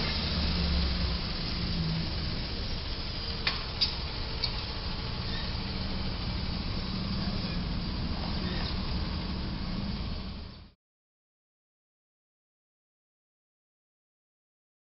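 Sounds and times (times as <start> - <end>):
truck engine rumble: 0.0 - 10.8.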